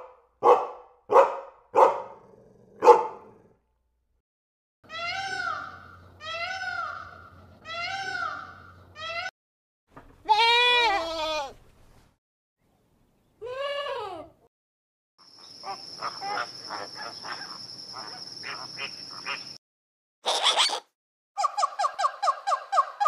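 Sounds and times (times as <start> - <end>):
peacock calling: 4.9 - 9.3, 15.3 - 19.6, 20.2 - 23.0
goat bleating: 10.2 - 11.6.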